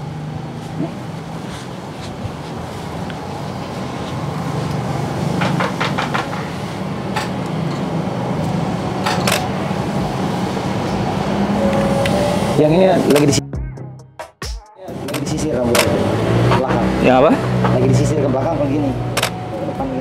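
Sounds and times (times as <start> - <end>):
sharp clicks: 19.1 - 19.4.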